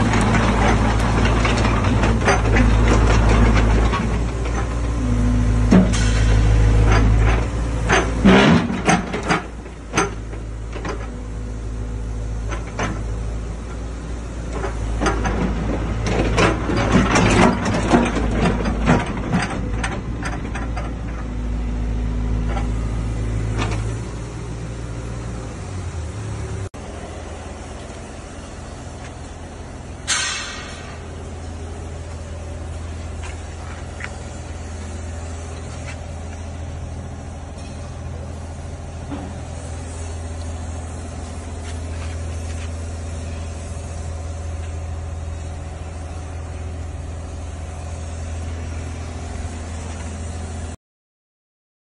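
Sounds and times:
diesel engine running: 0.0s - 50.8s
metallic clanks and knocks: 5.7s - 11.2s, 30.0s - 31.1s.

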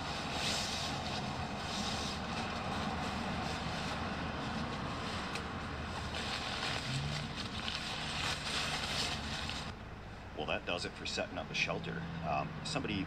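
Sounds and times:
sleeping bag rustling: 0.0s - 9.7s
traffic rumble: 0.0s - 13.0s.

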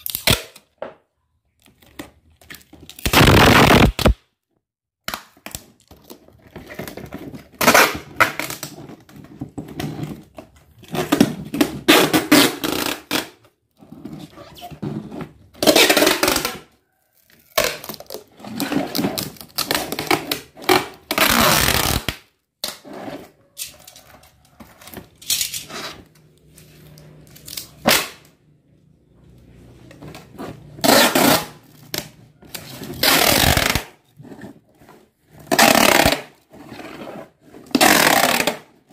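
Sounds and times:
packing tape pulled off roll: 0.0s - 0.7s, 2.8s - 4.2s, 5.1s - 8.8s, 18.9s - 22.8s, 30.8s - 34.0s, 35.4s - 36.4s, 37.6s - 38.9s.

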